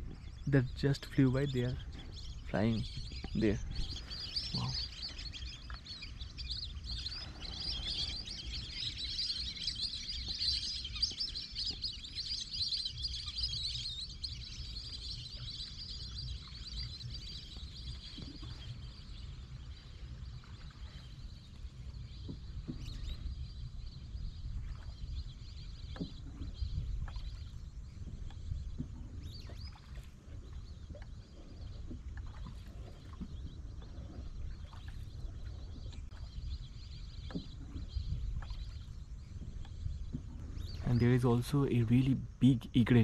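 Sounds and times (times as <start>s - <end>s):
low rumble: 0.0s - 9.3s
ducks whistling in flight: 1.0s - 21.2s.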